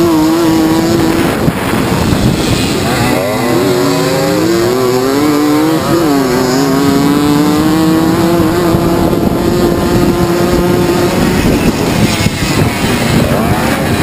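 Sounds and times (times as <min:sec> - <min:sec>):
moped engine racing: 0:00.0 - 0:14.0.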